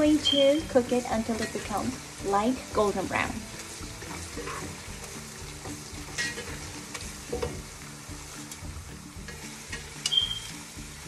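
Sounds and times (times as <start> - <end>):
onion sizzling in hot oil: 0.0 - 11.0
spoon knocking and scraping pot: 4.0 - 6.7.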